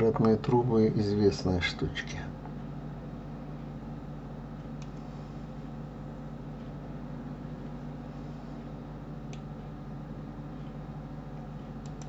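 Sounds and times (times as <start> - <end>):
low electrical hum: 0.0 - 12.0
computer mouse clicks: 11.8 - 12.0.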